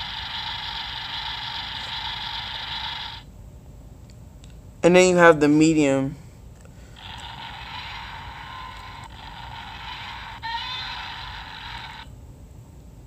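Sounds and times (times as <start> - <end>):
toy speaker tinny noisy rush: 0.0 - 3.2, 7.0 - 12.1.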